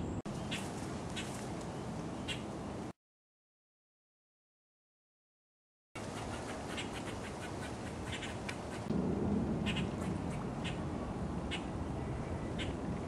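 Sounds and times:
squirrel alarm calls: 2.2 - 2.5, 6.0 - 8.9, 9.6 - 12.8.

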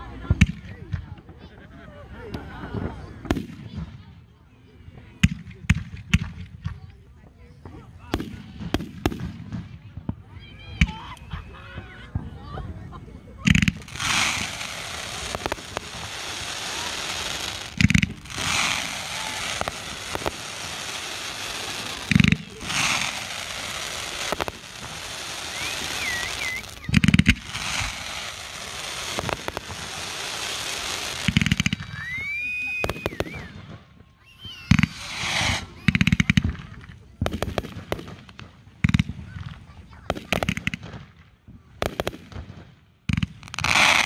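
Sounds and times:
fireworks bangs: 2.3 - 4.2, 4.9 - 44.0
fireworks hiss: 13.4 - 33.8, 34.4 - 41.0, 43.2 - 44.0.

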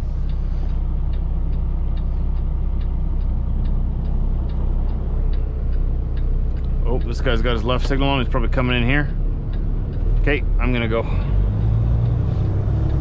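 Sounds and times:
diesel engine idling: 0.0 - 13.0
turn signal ticking: 0.0 - 13.0.

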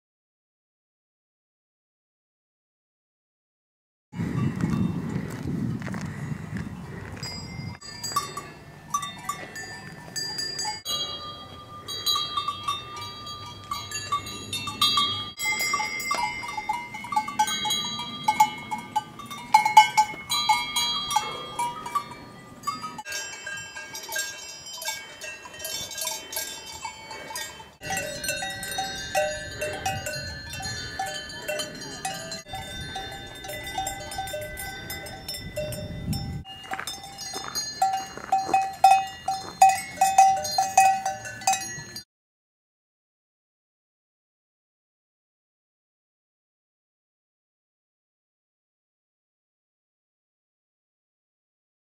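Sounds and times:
cowbells clanking: 4.2 - 5.4, 7.0 - 42.0.

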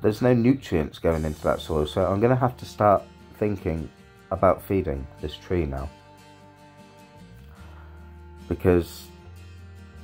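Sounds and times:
quiet guitar music: 0.0 - 10.0.

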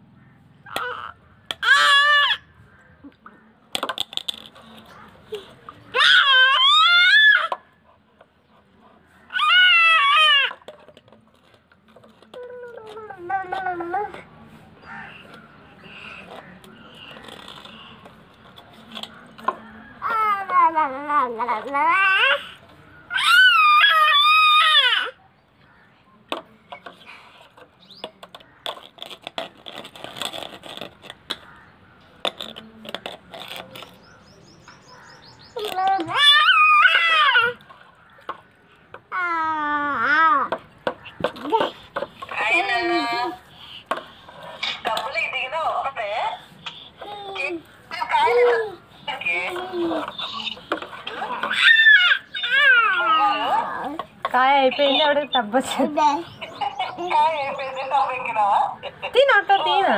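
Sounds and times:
baby squealing: 0.7 - 2.5, 5.9 - 7.6, 21.9 - 25.2, 35.6 - 37.6, 49.4 - 53.9
child wailing: 51.3 - 53.9.

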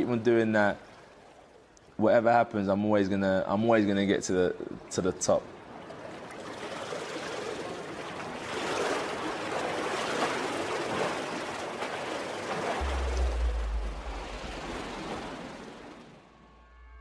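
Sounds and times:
water splashing from swimming: 5.6 - 16.1
deep low hum: 12.8 - 17.0.

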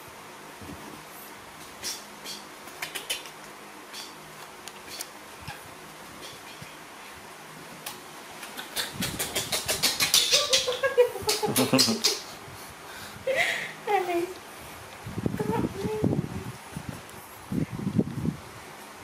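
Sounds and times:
room hiss: 0.0 - 19.0
woman laughing: 10.2 - 12.4, 13.3 - 13.8.

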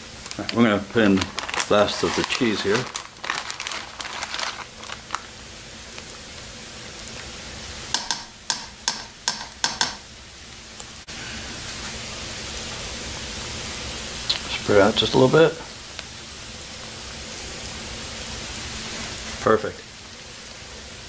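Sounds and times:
steady background hiss: 0.0 - 21.0
plastic bag crinkling: 0.2 - 5.4.

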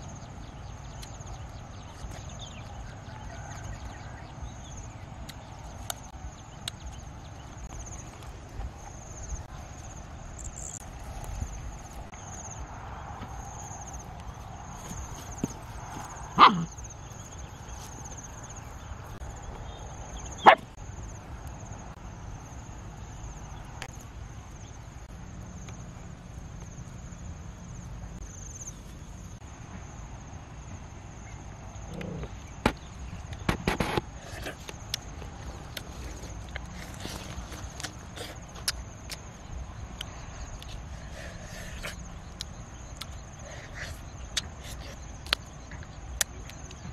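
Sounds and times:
dog barking: 16.4 - 16.7, 20.4 - 20.7.

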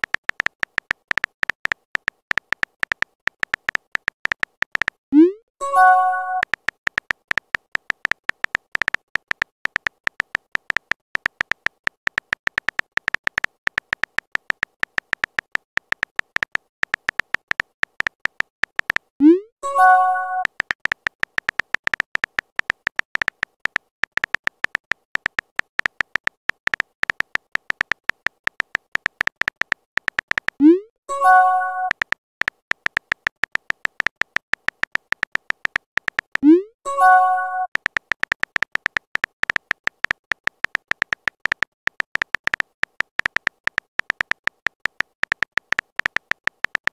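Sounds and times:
keyboard tap clicks: 0.0 - 19.1, 19.8 - 46.9
brief chime: 5.6 - 6.4, 19.6 - 20.4, 31.1 - 31.9, 36.9 - 37.7.

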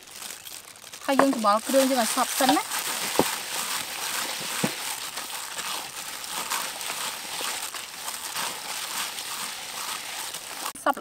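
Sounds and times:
plastic glove crinkling: 0.0 - 11.0.

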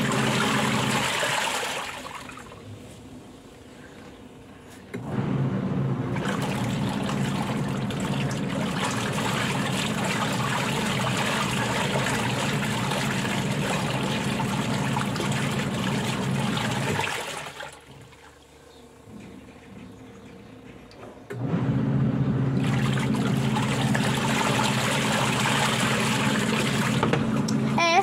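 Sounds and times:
water and clothes sloshing: 0.0 - 3.3, 6.1 - 18.6, 22.6 - 27.5
washing machine motor hum: 0.0 - 28.0.

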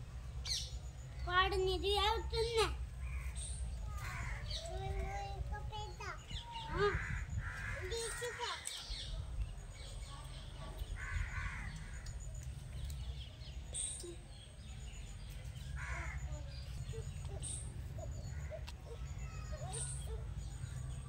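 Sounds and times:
crows cawing: 3.9 - 4.6, 6.6 - 8.7, 11.0 - 12.1, 15.8 - 16.3.

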